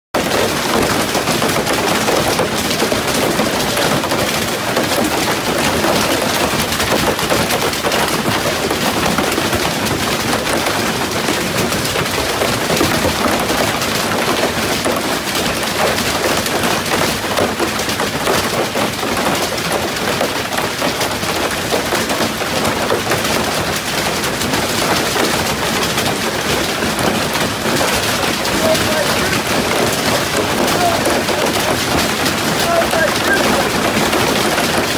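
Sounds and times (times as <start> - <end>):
heavy hail clattering: 0.1 - 34.9.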